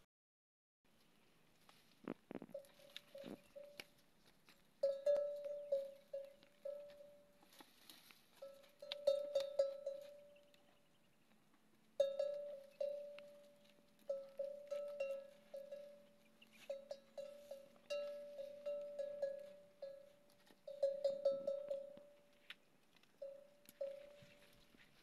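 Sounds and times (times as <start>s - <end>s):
metal bell ringing: 4.8s - 7.2s, 8.4s - 10.3s, 12.0s - 13.5s, 14.1s - 16.1s, 16.7s - 22.2s, 23.2s - 24.4s.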